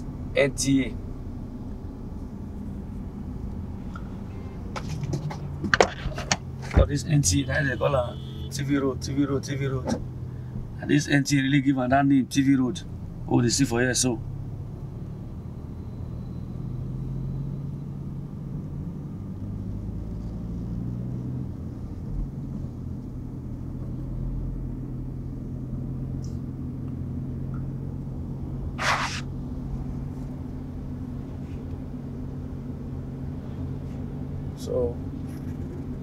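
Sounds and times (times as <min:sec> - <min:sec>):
car engine and road noise: 0:00.0 - 0:36.0
brief noisy burst: 0:28.8 - 0:29.3.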